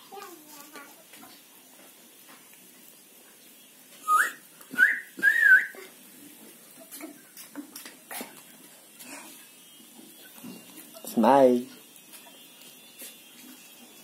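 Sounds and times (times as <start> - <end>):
person whistling rising notes: 4.0 - 5.8.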